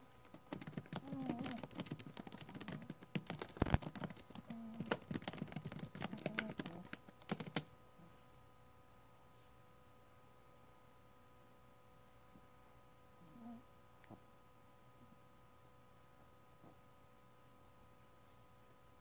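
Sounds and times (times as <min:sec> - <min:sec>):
laptop keyboard typing: 0:00.2 - 0:07.7.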